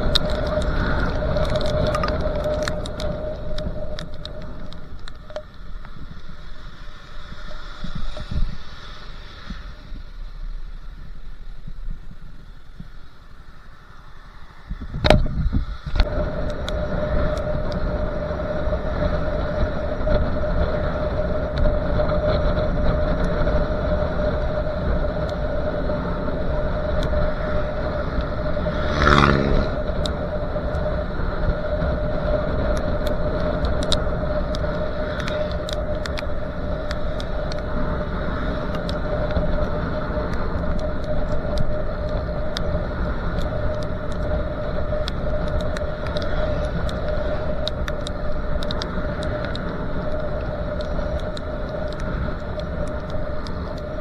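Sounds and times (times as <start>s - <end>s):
constant whine: 0.0s - 54.0s
wind and road noise: 0.0s - 54.0s.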